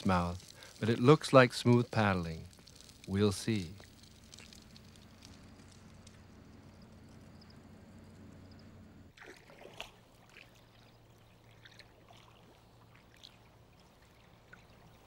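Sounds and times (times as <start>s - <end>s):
steady low hum: 0.0s - 9.2s
paddle splashing in water: 9.1s - 15.0s.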